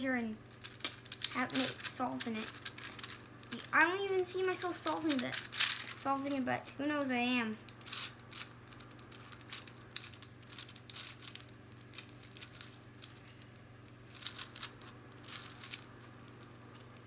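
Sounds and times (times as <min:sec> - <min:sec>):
plastic puzzle clicking: 0:07.8 - 0:13.2.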